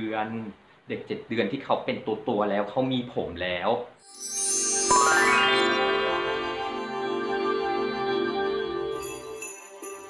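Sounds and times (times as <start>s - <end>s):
soft synthesizer music: 4.0s - 9.5s.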